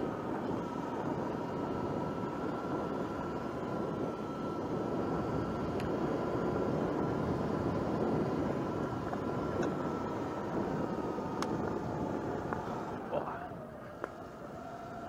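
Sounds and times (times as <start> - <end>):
electric motor whine: 0.0 - 15.0
tyres on gravel: 11.4 - 15.0.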